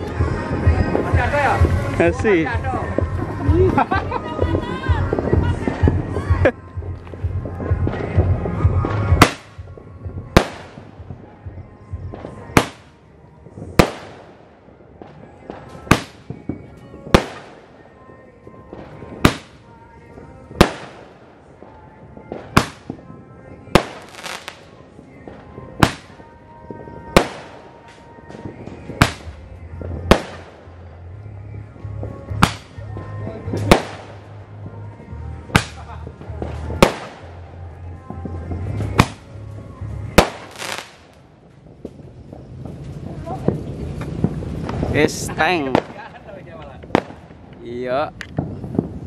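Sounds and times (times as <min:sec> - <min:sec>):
roman candle bangs: 0:08.9 - 0:09.6, 0:25.8 - 0:26.2.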